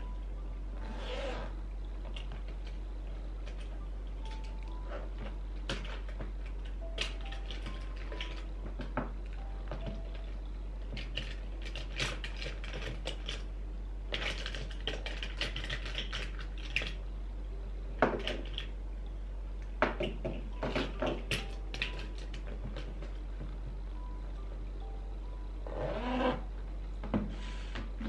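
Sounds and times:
small objects clicking together: 14.1 - 17.0.

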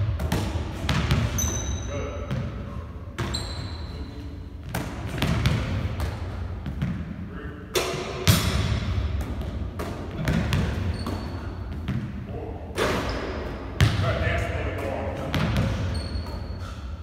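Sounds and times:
basketball bouncing on hardwood floor: 0.0 - 2.5, 4.6 - 7.0, 8.3 - 12.1, 13.8 - 14.0
basketball slaps: 0.0 - 2.6, 4.6 - 7.1, 7.7 - 12.2, 12.8 - 14.1, 15.3 - 16.5.

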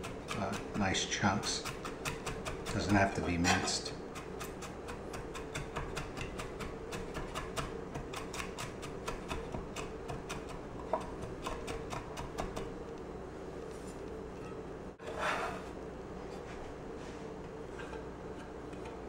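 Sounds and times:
knife chopping on wooden board: 1.6 - 12.7.

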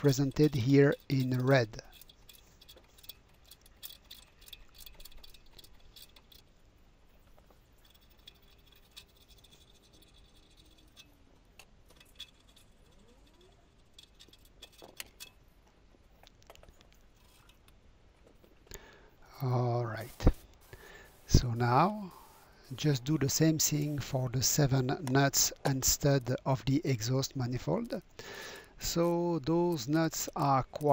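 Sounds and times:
spanner metallic clicks: 0.0 - 6.5.

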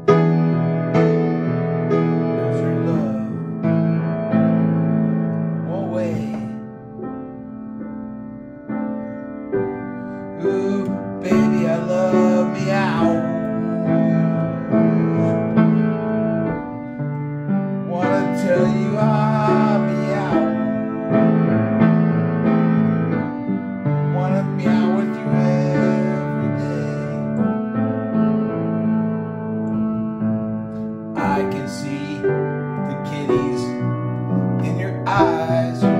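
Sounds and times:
piano playing slow chords: 0.0 - 35.9
wordless singing voice: 2.4 - 3.4, 5.7 - 6.6, 10.4 - 16.0, 17.9 - 21.2, 24.1 - 27.4, 31.2 - 33.8, 34.6 - 35.9.

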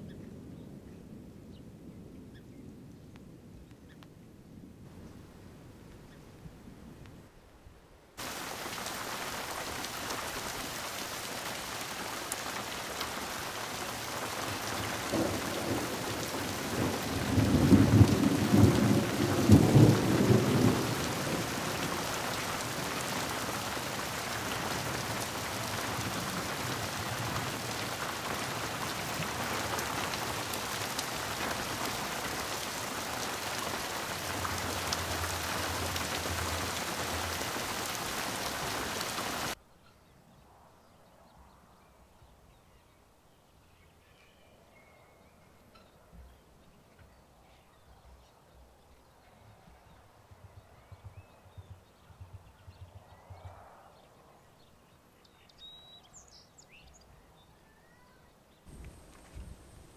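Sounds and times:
rain hissing: 8.2 - 39.6, 58.7 - 59.9.

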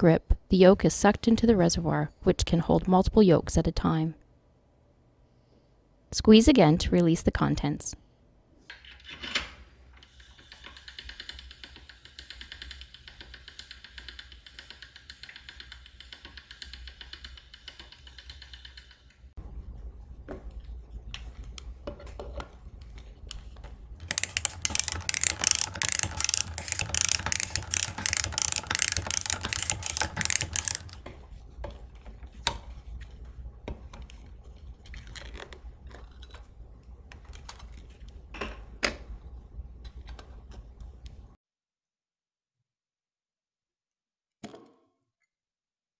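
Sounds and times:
can opener ratchet clicks: 24.0 - 31.0
pasta machine cranking: 24.0 - 31.0.

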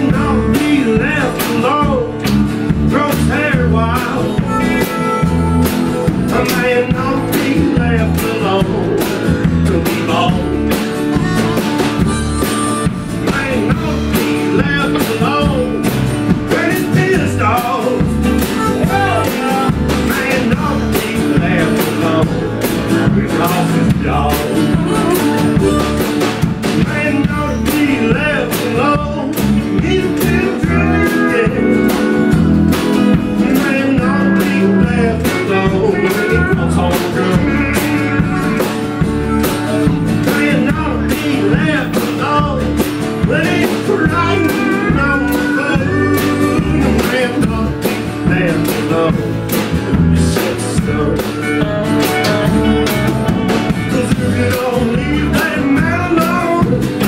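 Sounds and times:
acoustic guitar: 0.0 - 57.0
electric bass: 0.0 - 57.0
harmonica: 0.0 - 57.0
pedal steel guitar: 0.0 - 57.0
steady drum beat: 0.0 - 57.0.

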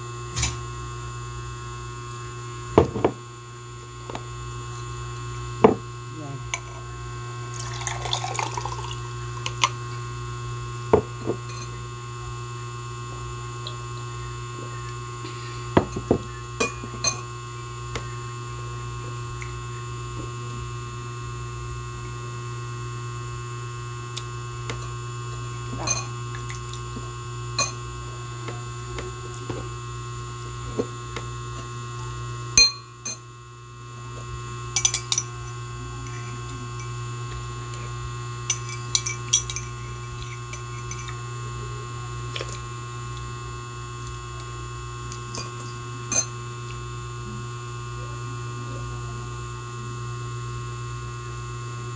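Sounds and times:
electrical hum: 0.0 - 51.9
liquid pouring into a glass: 7.5 - 9.1
spoon clinking against glass: 32.6 - 33.2, 34.8 - 35.3, 38.5 - 41.2.

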